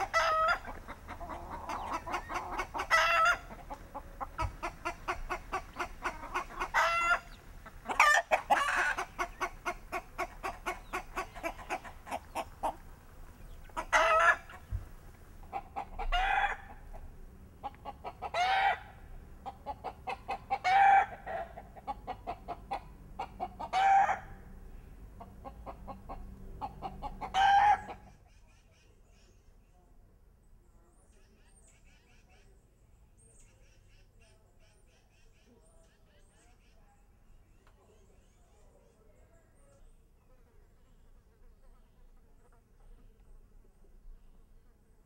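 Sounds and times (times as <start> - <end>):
chickens clucking: 0.0 - 28.2.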